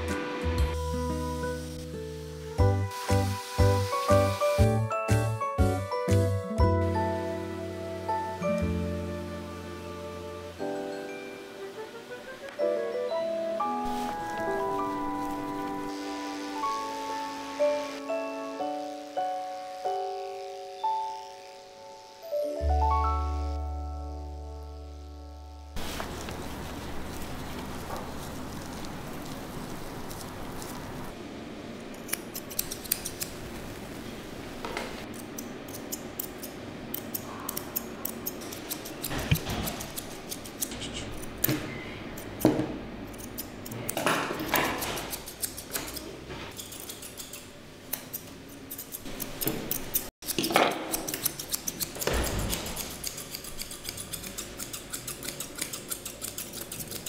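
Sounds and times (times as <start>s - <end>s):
scissors snipping fur: 31.9s - 33.4s, 35.1s - 41.5s, 43.1s - 44.0s, 44.6s - 57.0s.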